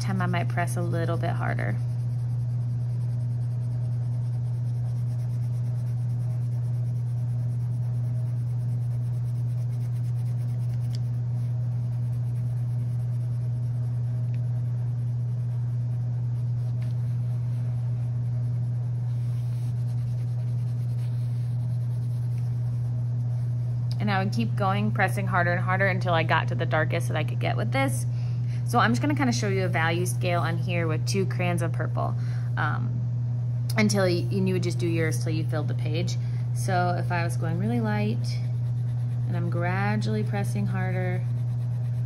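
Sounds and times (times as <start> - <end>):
low electrical hum: 0.0 - 42.0
crayon rubbing on paper: 0.1 - 23.6, 37.4 - 42.0.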